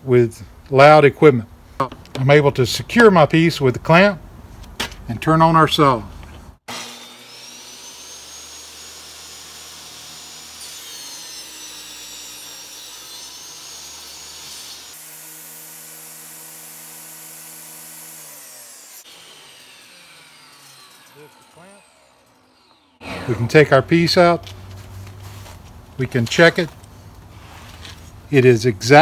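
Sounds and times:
table saw cutting wood: 6.6s - 24.7s
saw blade winding down: 6.7s - 24.6s.

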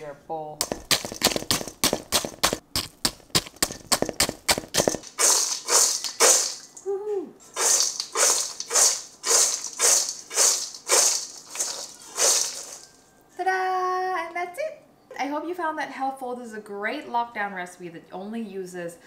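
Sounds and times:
granola rattling in shaken bowl: 0.6s - 6.7s, 7.5s - 13.0s
wooden spoon scraping steel bowl: 7.5s - 12.9s.

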